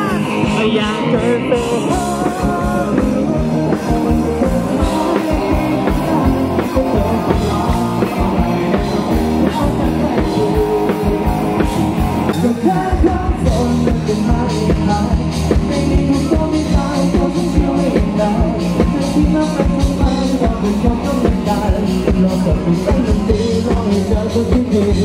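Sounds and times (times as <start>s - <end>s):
bass guitar: 0.0s - 25.0s
drum kit beating: 0.0s - 25.0s
electric guitars: 0.0s - 25.0s
person singing: 0.0s - 25.0s.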